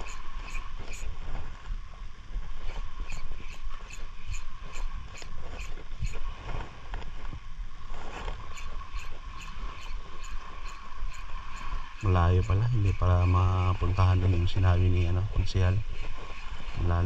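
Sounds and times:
fishing reel ticking: 0.0s - 1.2s, 3.0s - 6.3s, 8.4s - 14.7s.

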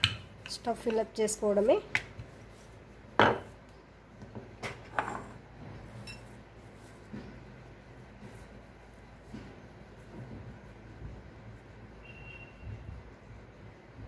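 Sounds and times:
objects knocking on stone countertop: 3.2s - 3.5s.

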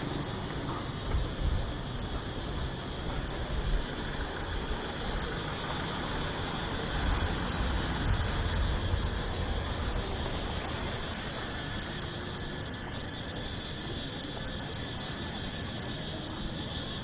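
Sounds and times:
background street traffic: 0.0s - 17.0s.

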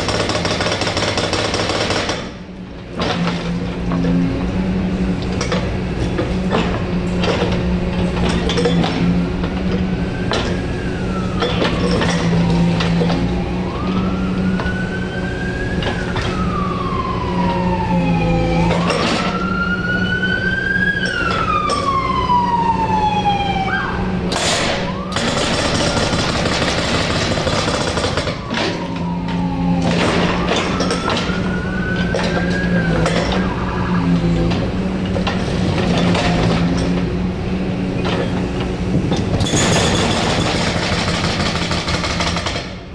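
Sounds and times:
hydraulic breaker hammering: 0.0s - 4.0s, 24.3s - 28.9s, 38.2s - 42.9s
diesel engine running: 2.2s - 42.9s
siren wailing: 7.4s - 40.4s.

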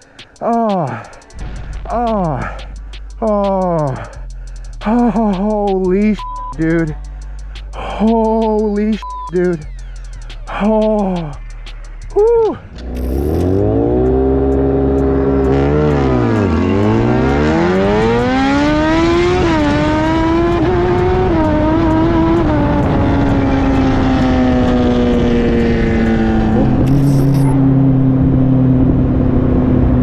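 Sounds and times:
motorcycle engine accelerating: 9.4s - 30.0s
brief swooping tone: 26.8s - 27.6s.

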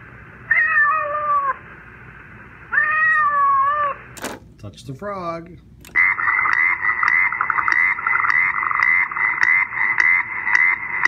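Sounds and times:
recorded frog croaking from toy speaker: 5.9s - 11.0s.

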